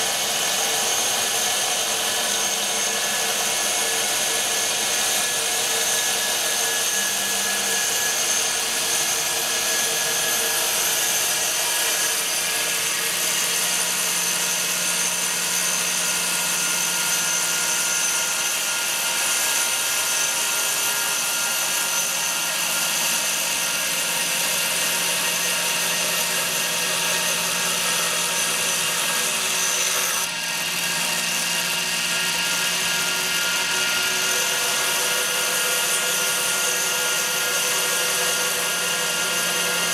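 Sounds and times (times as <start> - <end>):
wire-cutting machine whirring: 0.0 - 39.9.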